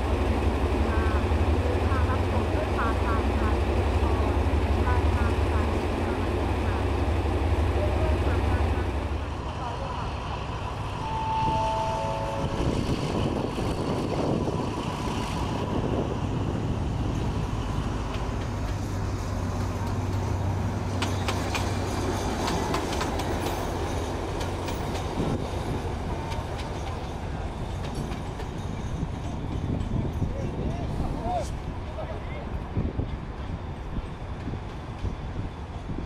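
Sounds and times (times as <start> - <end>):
diesel locomotive engine drone: 0.0 - 36.0
train wheels clicking over rails: 16.8 - 30.2.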